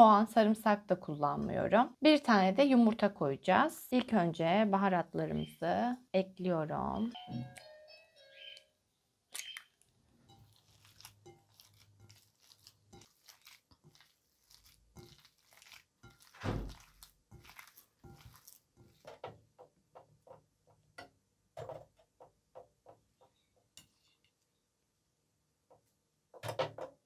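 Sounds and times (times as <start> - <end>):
egg cracking on bowl: 9.3 - 19.3
hands squishing minced meat: 10.2 - 20.8.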